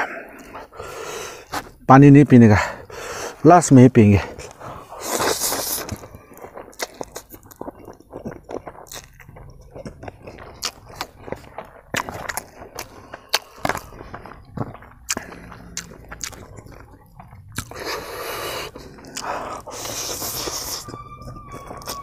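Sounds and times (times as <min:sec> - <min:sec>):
chewing clicks and smacks: 0:04.4 - 0:21.0
loud slurping of noodles: 0:04.8 - 0:06.0, 0:17.7 - 0:20.8
steady high tone: 0:19.6 - 0:22.0.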